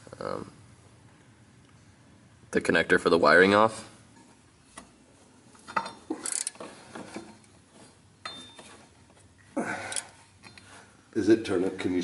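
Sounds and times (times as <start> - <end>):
metal hand tools clinking: 5.7 - 6.7.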